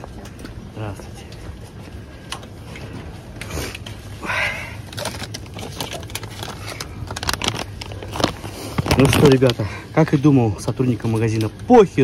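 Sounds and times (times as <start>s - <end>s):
low shop hum: 0.0s - 12.0s
plastic pouches crinkling: 4.8s - 9.7s.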